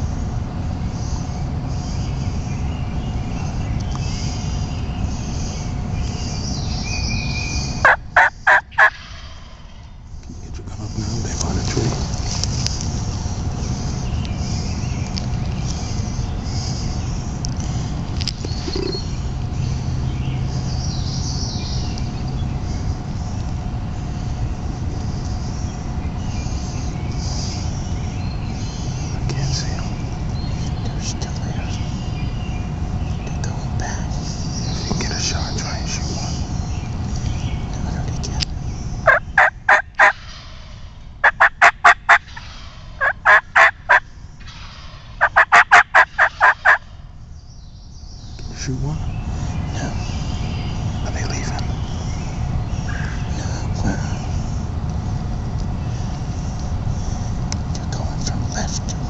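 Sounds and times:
faint constant hum: 0.0 - 59.0
songbirds chirping: 0.0 - 59.0
steady low rumbling: 0.0 - 59.0
wild turkey yelping: 7.8 - 9.9, 39.0 - 47.0.

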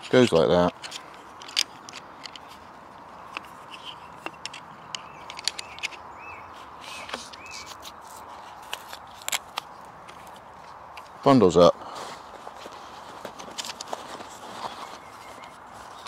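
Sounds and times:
bird chirping: 3.2 - 8.4, 14.4 - 16.0.

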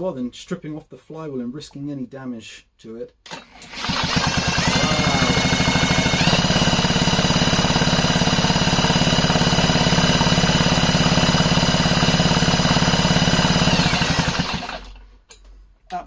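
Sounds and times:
impact wrench motor whining: 3.3 - 15.0.

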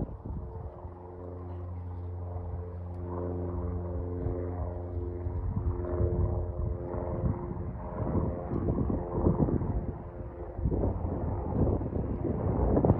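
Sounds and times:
wind buffeting microphone: 0.0 - 1.4, 2.2 - 12.9
plane engine droning: 0.0 - 12.9.

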